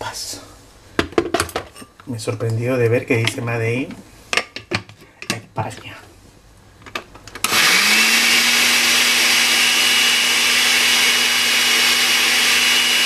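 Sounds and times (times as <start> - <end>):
blender motor whining: 7.4 - 13.0.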